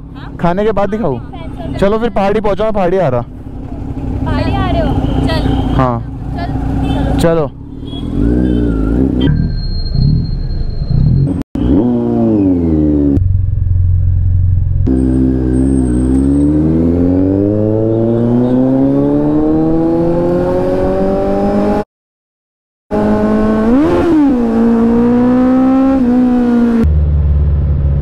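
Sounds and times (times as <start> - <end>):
motorcycle engine accelerating: 3.3 - 21.8, 22.9 - 28.0.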